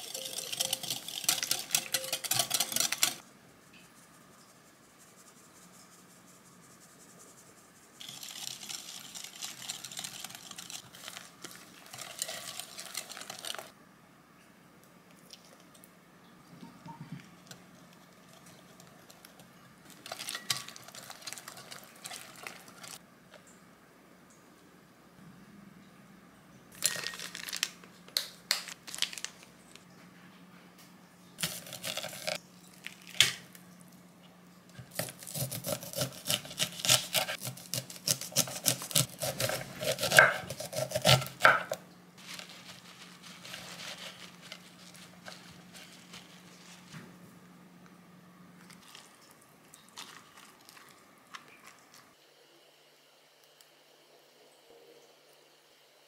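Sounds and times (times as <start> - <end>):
knife slicing corn on board: 34.9 - 41.8.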